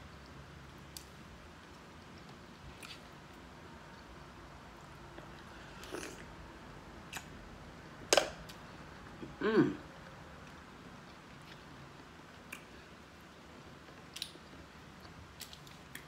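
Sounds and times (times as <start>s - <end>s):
person humming: 9.2s - 9.8s.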